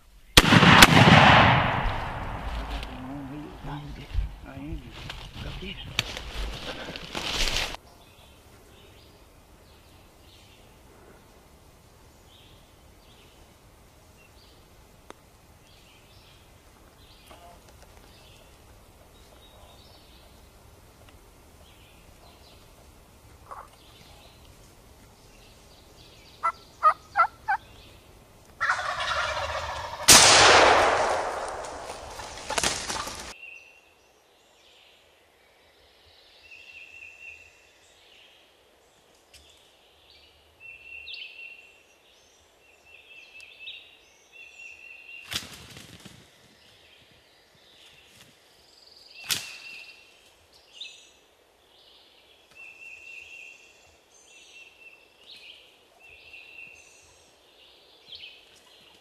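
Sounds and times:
turkey gobbling: 0:23.4 - 0:23.8, 0:26.4 - 0:27.7, 0:28.6 - 0:30.2, 0:31.9 - 0:33.3.

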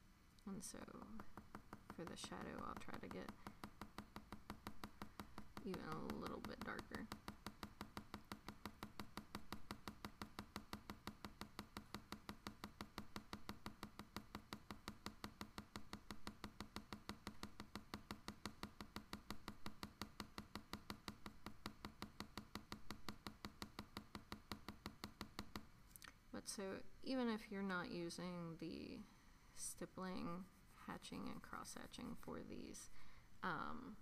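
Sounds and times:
pencil tapping on paper: 0:00.8 - 0:25.7.

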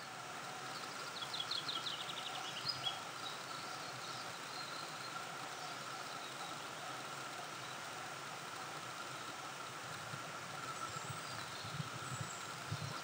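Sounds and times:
faint steady hum: 0:00.0 - 0:13.0
songbird singing: 0:00.0 - 0:13.0.

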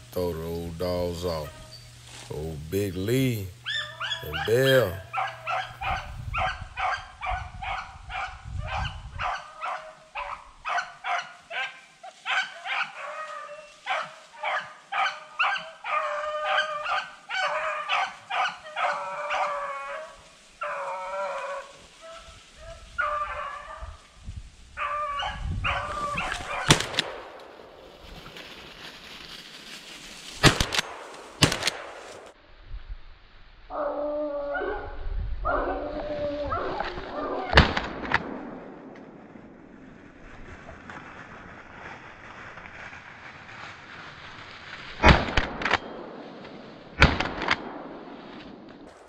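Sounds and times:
dogs baying: 0:03.6 - 0:22.3
sharp loud bangs: 0:26.5 - 0:27.3, 0:30.4 - 0:32.4.

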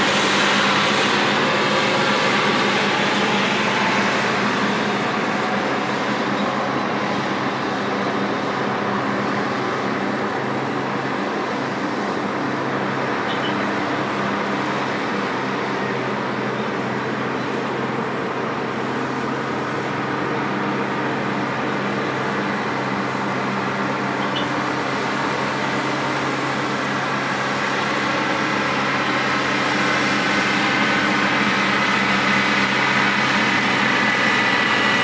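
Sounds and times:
heavy diesel machinery drone: 0:00.0 - 0:35.0.

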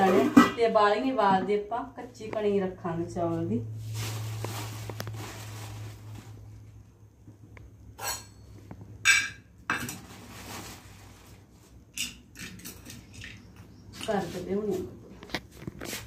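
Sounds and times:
steel bowl and utensils clinking: 0:11.9 - 0:14.3.

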